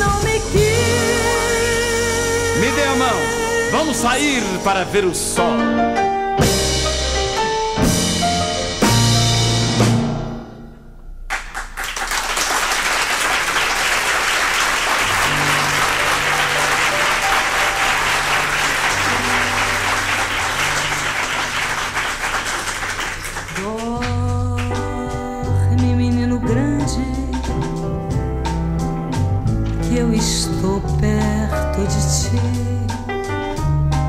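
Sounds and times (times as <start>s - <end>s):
song: 0.0s - 11.6s, 13.5s - 34.0s
audience applauding: 11.3s - 24.7s.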